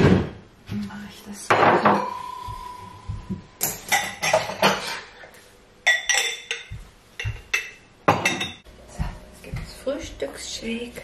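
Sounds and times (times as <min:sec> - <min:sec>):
dishes and kitchenware clinking: 0:01.5 - 0:08.7.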